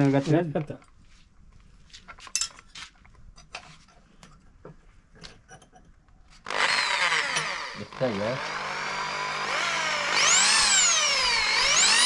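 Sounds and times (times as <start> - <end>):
electric drill whining: 6.4 - 12.0.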